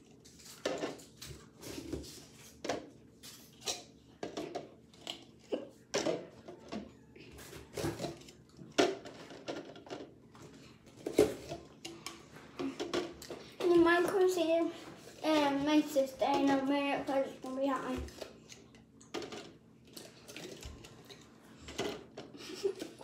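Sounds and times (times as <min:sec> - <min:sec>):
plastic cups clacking on countertop: 0:03.7 - 0:06.9, 0:07.6 - 0:14.4, 0:17.8 - 0:23.0.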